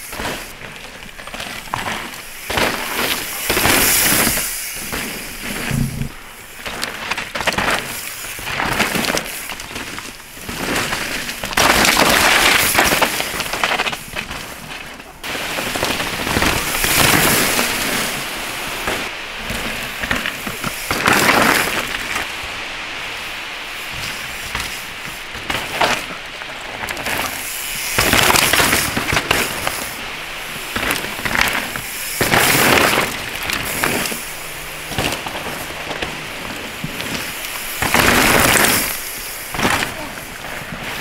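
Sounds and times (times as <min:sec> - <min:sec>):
bike rattling over rough ground: 0:00.0 - 0:41.0
bike tyres skidding through dirt: 0:00.0 - 0:41.0.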